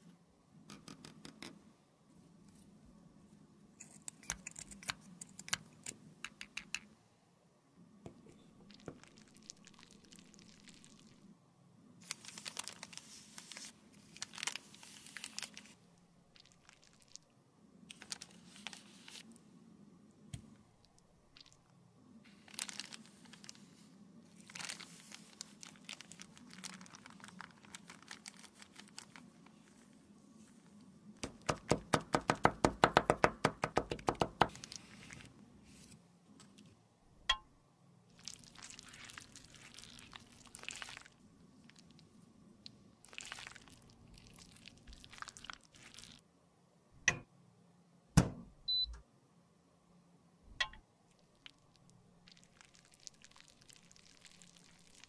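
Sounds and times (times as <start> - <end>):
crackling squishes: 8.6 - 11.3, 12.0 - 19.4, 20.4 - 32.0, 38.1 - 46.2, 51.1 - 55.0
plastic bag crinkling: 12.0 - 15.8, 22.3 - 23.7, 24.4 - 29.4, 38.2 - 41.9, 43.0 - 46.2.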